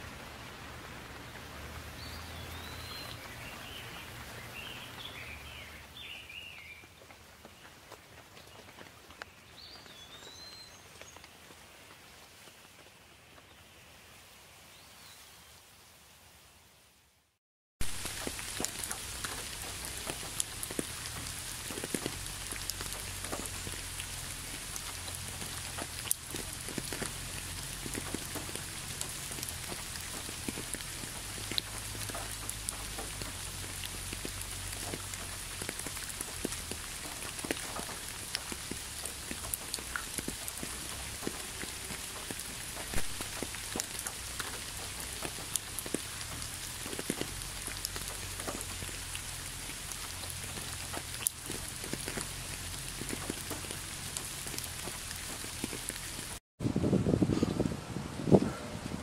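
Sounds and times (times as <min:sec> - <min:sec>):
raindrops ticking close by: 0:00.0 - 0:14.1, 0:17.8 - 0:56.4
steady rainfall: 0:00.0 - 0:59.0.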